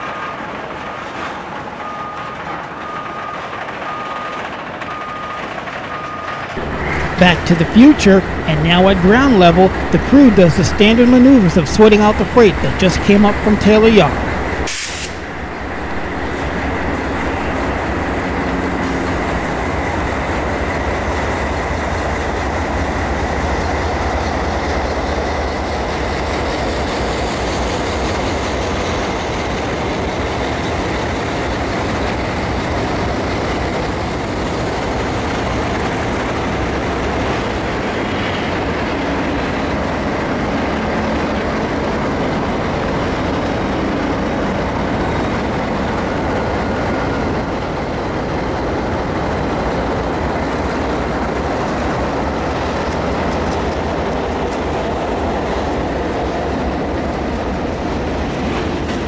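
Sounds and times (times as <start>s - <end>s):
diesel locomotive engines droning: 0.0s - 59.0s
train wheels on rails: 0.0s - 59.0s.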